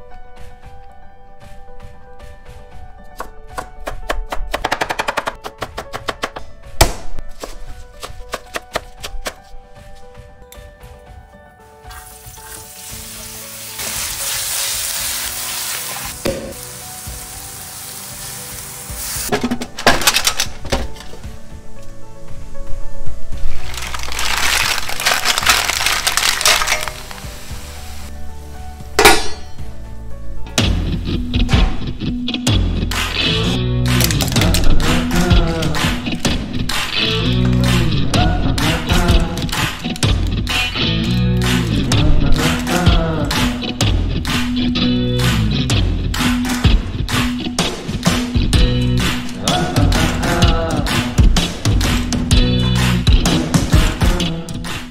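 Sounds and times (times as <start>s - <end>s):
background music: 0.0s - 54.9s
frying sizzle: 11.9s - 19.3s, 23.5s - 28.1s
mussel shells clattering: 23.6s - 27.2s.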